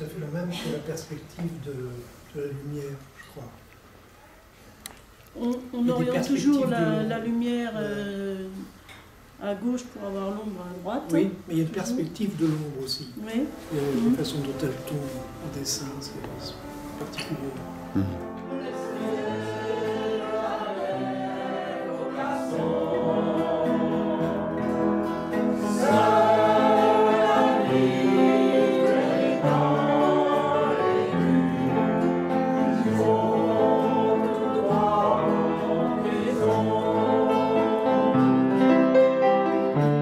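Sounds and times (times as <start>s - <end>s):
instrumental accompaniment: 13.5s - 40.0s
mixed choir singing: 18.4s - 39.5s.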